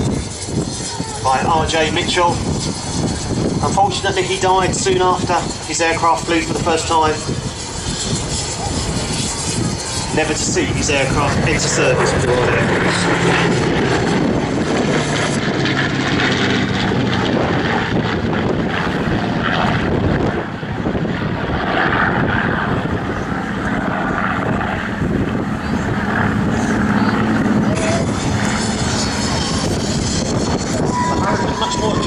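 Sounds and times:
propeller aircraft engines droning: 0.0s - 32.0s.

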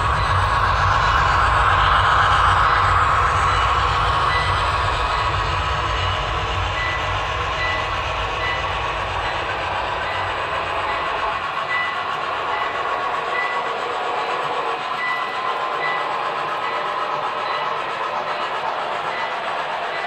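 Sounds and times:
low rumble: 0.0s - 13.3s
model train wheels clattering: 0.0s - 20.0s.

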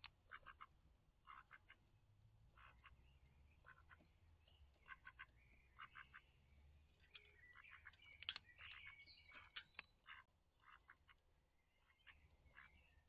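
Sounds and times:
faint duck quacks: 0.2s - 1.9s, 2.6s - 3.0s, 3.6s - 4.0s, 4.8s - 6.3s, 8.6s - 11.2s, 11.8s - 12.9s.

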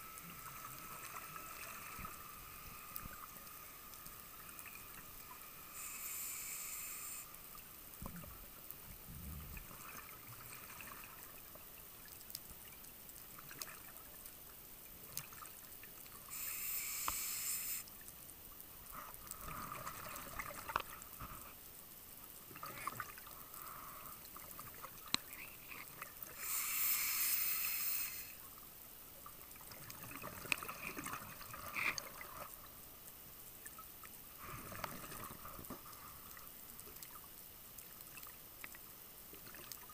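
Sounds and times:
faint clicks: 0.1s - 9.0s, 15.1s - 18.2s, 22.6s - 28.6s.

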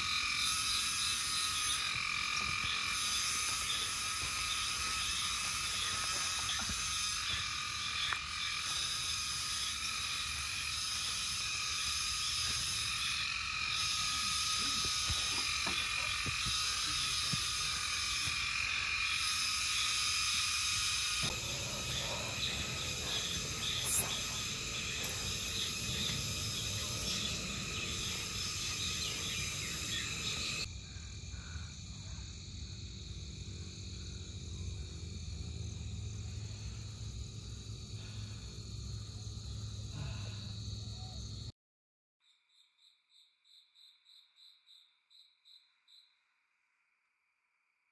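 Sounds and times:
frogs chirping: 0.0s - 32.8s
insects trilling: 0.0s - 41.5s.

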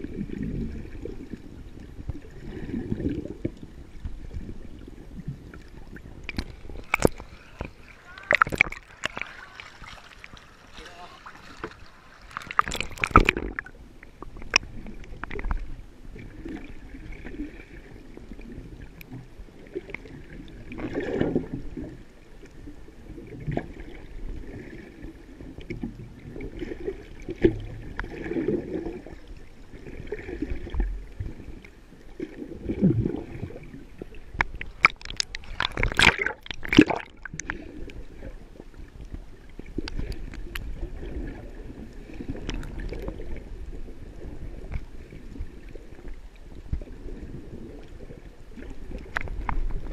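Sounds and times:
muffled underwater gurgling: 0.0s - 49.9s
water splashing: 0.0s - 49.9s.

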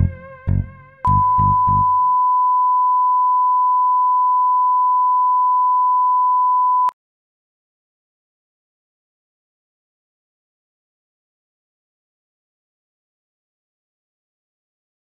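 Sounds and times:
high test tone beep: 1.0s - 6.9s.

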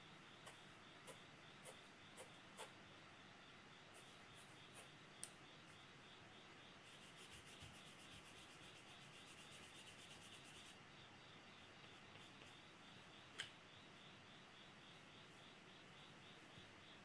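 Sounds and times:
pencil scratching on paper: 6.8s - 10.8s.

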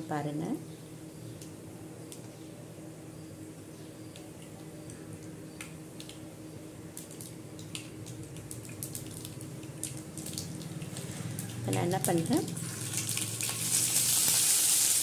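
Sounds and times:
seeds popping in hot oil: 4.0s - 6.3s, 6.9s - 15.0s.

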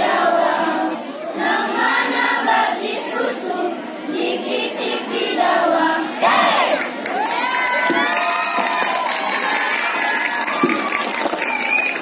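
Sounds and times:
choir singing: 0.0s - 6.8s.

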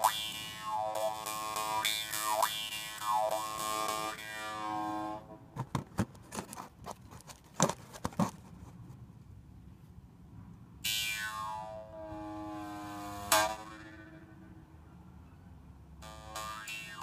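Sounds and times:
jaw harp twanging: 16.0s - 17.0s.

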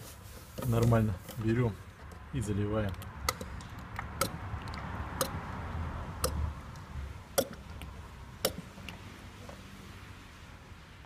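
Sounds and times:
sharp ticks: 2.8s - 5.4s, 6.2s - 9.0s.

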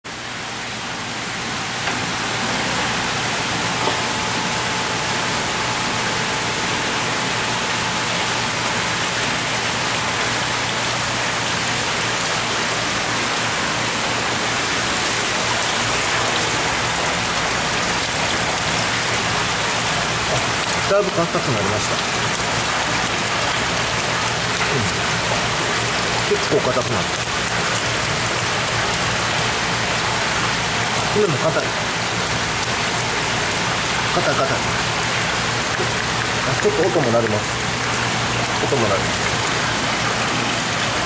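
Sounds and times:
low pump hum: 0.1s - 41.0s
water splashing in tank: 0.2s - 41.0s.

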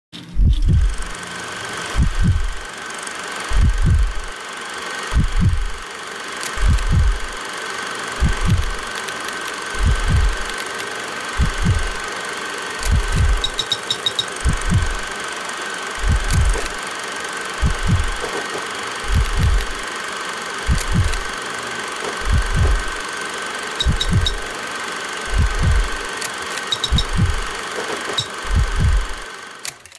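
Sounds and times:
low heartbeat-like double thump: 0.4s - 1.0s, 2.0s - 2.6s, 3.6s - 4.2s, 5.2s - 5.7s, 6.6s - 7.3s, 8.2s - 8.8s, 9.8s - 10.5s, 11.4s - 12.0s, 12.9s - 13.5s, 14.4s - 15.0s, 16.0s - 16.7s, 17.6s - 18.2s, 19.1s - 19.8s, 20.7s - 21.2s, 22.3s - 23.0s, 25.3s - 26.0s, 26.9s - 27.4s, 28.5s - 29.1s
quick ticks: 3.5s - 4.3s, 5.1s - 5.8s, 6.4s - 7.4s, 8.2s - 12.1s, 12.8s - 15.1s, 16.0s - 16.8s, 17.6s - 19.9s, 20.7s - 21.3s, 22.0s - 23.0s, 23.8s - 24.5s, 25.3s - 29.8s
thin high tone: 13.1s - 15.0s.

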